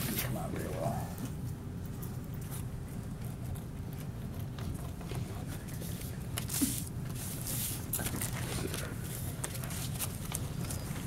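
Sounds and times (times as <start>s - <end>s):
low room hum: 0.0s - 11.0s
paper rustling and scraping: 5.2s - 11.0s.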